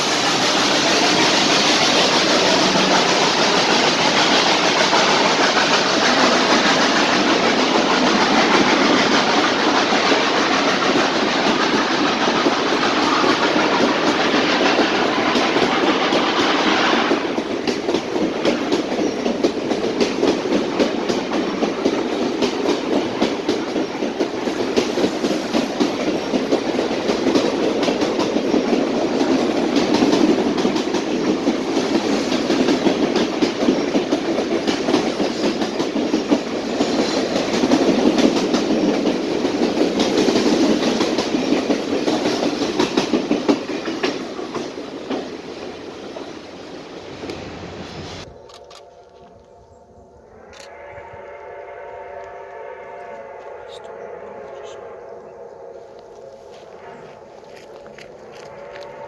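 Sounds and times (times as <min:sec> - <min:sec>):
high hiss: 0:00.0 - 0:07.3
train wheels clicking over rail joints: 0:00.0 - 0:49.2
train rumble: 0:00.0 - 0:59.0.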